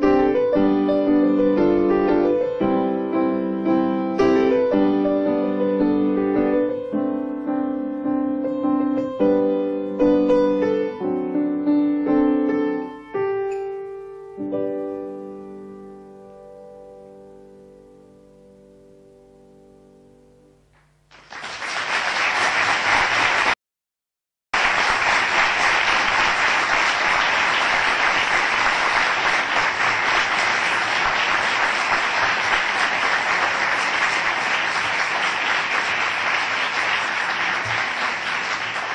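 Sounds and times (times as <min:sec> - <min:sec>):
audience applause: 0:21.1 - 0:23.6, 0:24.6 - 0:38.9.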